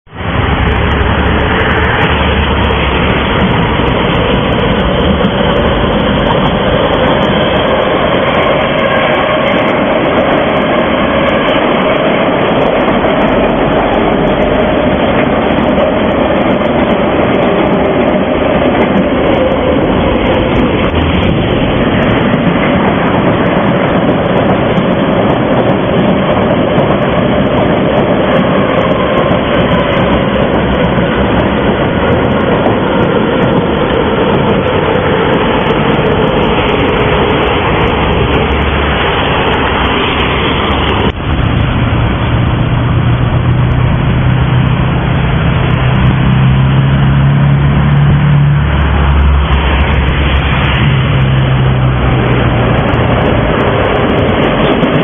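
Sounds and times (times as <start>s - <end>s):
train wheels rumbling on rail: 0.1s - 55.0s.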